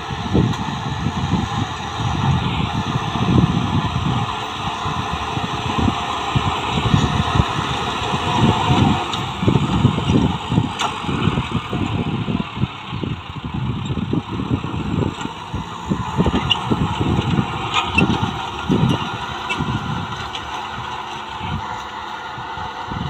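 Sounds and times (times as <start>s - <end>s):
tractor diesel engine under load: 0.0s - 23.0s
wind rumble on microphone: 0.0s - 23.0s.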